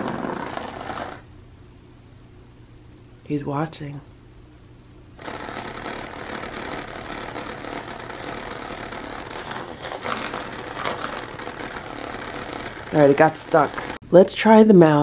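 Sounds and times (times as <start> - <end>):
toy motor buzzing rattle: 5.2 - 14.0.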